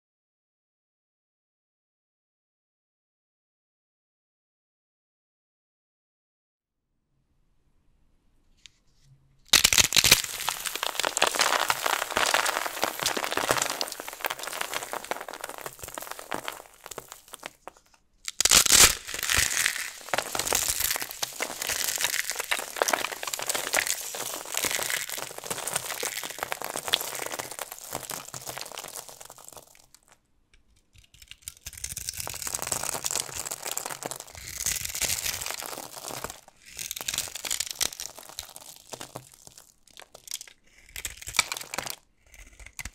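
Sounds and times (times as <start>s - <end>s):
soap crunching and crackling: 9.5s - 42.9s.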